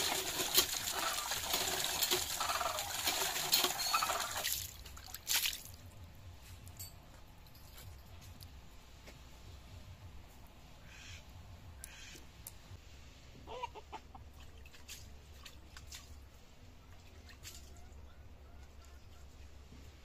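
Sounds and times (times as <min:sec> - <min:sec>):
chicken clucking: 0:02.3 - 0:04.4, 0:13.4 - 0:14.3.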